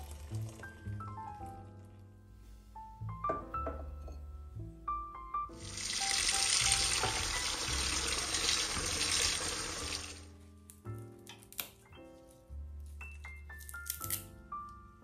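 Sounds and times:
tap running into bowl: 6.3s - 9.2s.

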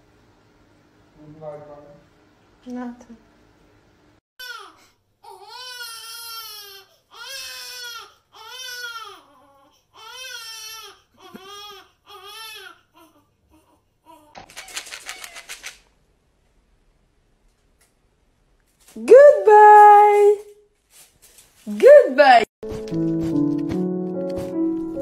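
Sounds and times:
high wailing voice: 19.0s - 20.4s.

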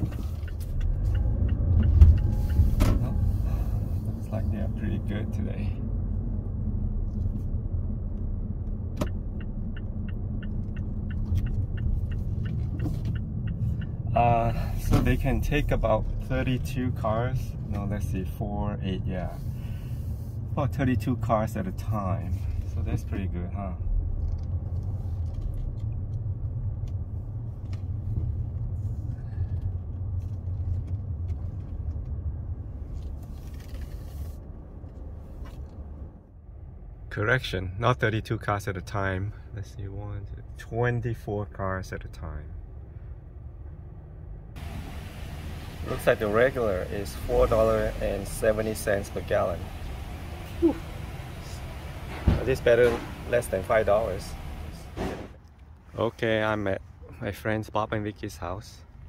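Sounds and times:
turn signal ticking: 0.0s - 4.8s, 8.0s - 18.1s
car engine rumble: 0.0s - 59.0s
road noise inside cabin: 0.0s - 59.0s.

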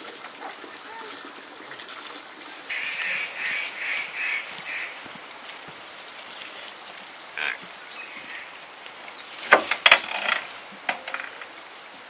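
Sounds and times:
short bird call: 2.7s - 5.0s
sharp clattering knocks: 9.4s - 11.5s.

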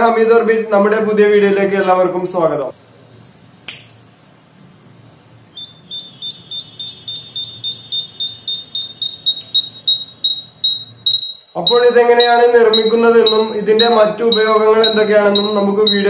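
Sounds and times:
alarm buzzer beeping rapidly: 5.6s - 16.0s.

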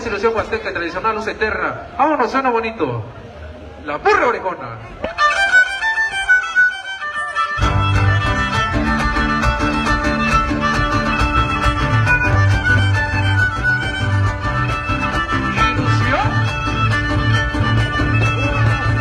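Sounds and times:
violin melody: 5.0s - 19.0s
guitars strumming: 7.4s - 19.0s.

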